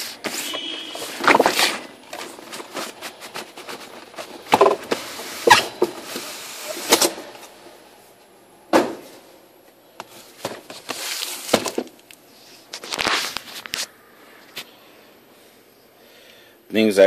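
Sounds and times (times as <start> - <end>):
cardboard scraping: 0.0 - 7.3.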